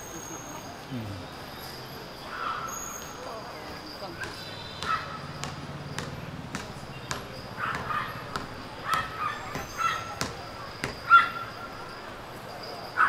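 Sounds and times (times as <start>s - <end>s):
small dog yapping: 8.8s - 10.2s.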